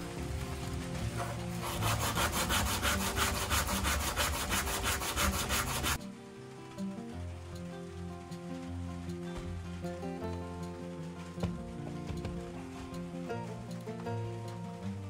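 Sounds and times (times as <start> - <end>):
sandpaper rubbing wooden block: 1.2 - 6.0.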